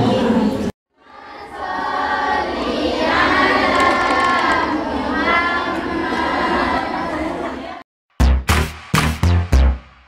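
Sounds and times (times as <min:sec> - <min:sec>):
young women singing in unison: 0:00.0 - 0:07.6.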